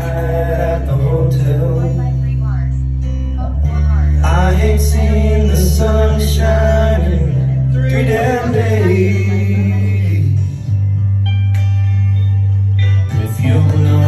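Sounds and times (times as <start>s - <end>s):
man singing into microphone: 0.0s - 2.4s, 3.7s - 10.7s, 13.1s - 14.0s
backing track with bass: 0.0s - 14.0s.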